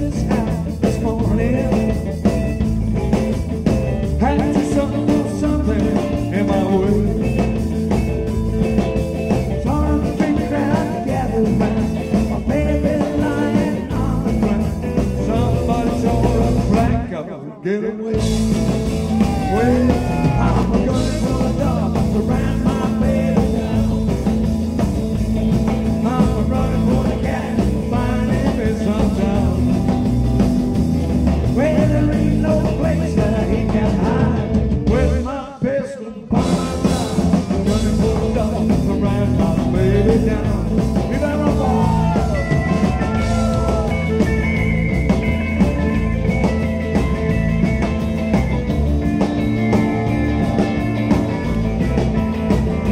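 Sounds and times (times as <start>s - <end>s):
person singing: 0.0s - 2.0s, 4.0s - 7.6s, 9.5s - 24.5s, 25.8s - 30.0s, 31.4s - 44.7s
rock and roll band playing: 0.0s - 52.9s.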